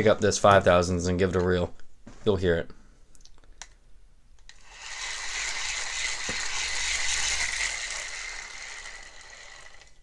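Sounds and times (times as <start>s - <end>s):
fishing reel cranked rough: 4.5s - 10.0s.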